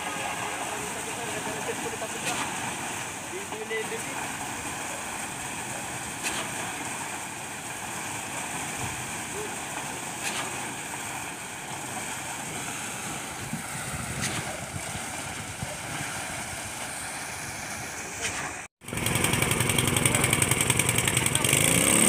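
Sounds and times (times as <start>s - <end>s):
construction machinery rumble: 0.0s - 22.0s
wind on microphone: 13.1s - 17.0s.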